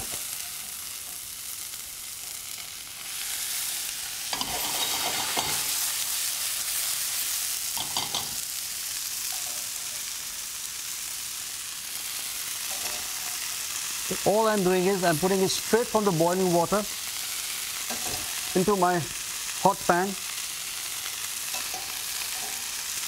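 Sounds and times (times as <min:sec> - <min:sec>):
vegetables sizzling in hot oil: 0:00.0 - 0:23.0
utensils knocking against pan: 0:17.9 - 0:18.3, 0:21.5 - 0:22.7.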